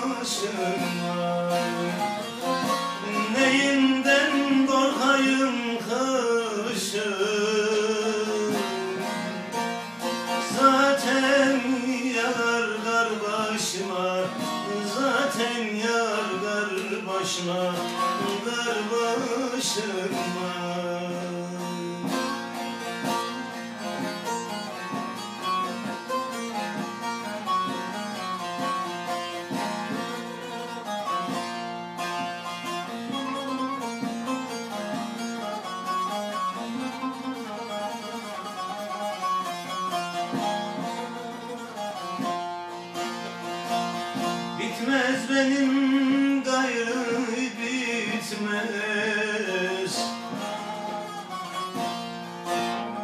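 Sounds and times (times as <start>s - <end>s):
person singing: 0.0s - 9.6s, 10.3s - 24.1s, 44.6s - 51.8s
plucked string instrument: 0.0s - 53.0s.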